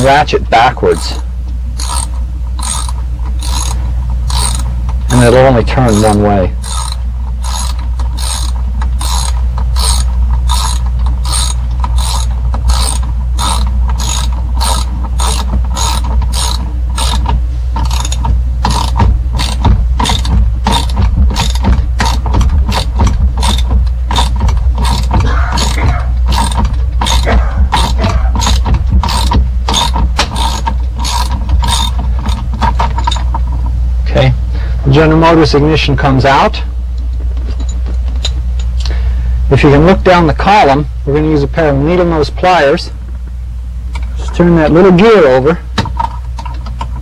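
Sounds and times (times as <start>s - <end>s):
socket ratchet clicking: 1.8s - 5.2s, 5.9s - 33.2s.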